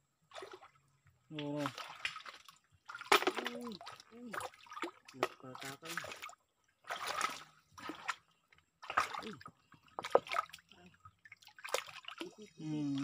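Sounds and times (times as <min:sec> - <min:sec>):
hands splashing in stream water: 0:01.6 - 0:09.4, 0:11.3 - 0:12.3.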